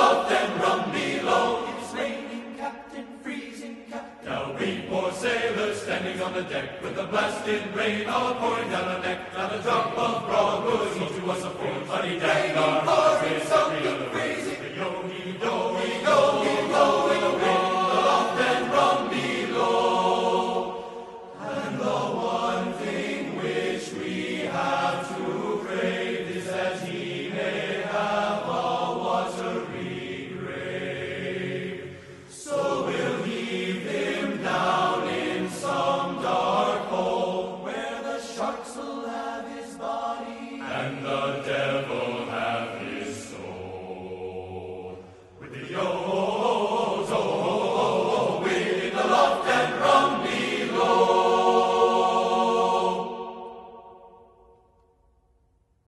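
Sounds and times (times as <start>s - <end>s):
group singing a sea shanty: 0.0s - 55.0s.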